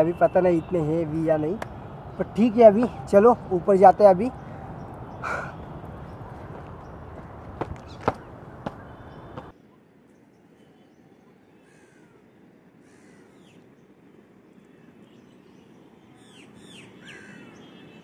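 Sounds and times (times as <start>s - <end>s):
birds calling: 0.0s - 9.5s, 14.8s - 18.0s
faint outdoor ambience: 0.0s - 18.0s
footsteps on stone steps: 5.2s - 9.5s.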